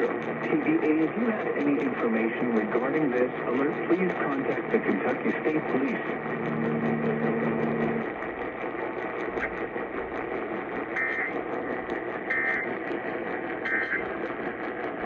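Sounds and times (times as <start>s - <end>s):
low steady hum: 0.0s - 15.0s
radio static: 0.0s - 15.0s
warbling data tone bursts: 9.3s - 14.7s.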